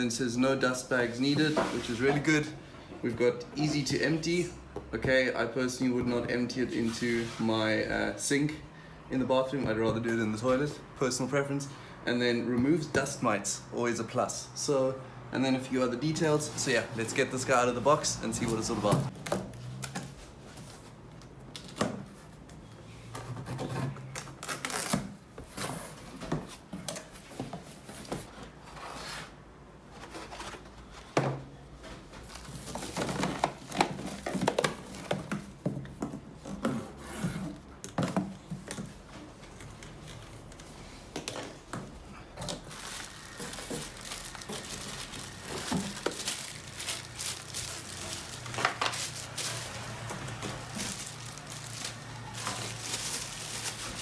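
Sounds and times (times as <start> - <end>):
plastic bags crinkling: 42.4 - 54.0
cardboard tearing and scraping: 42.6 - 54.0.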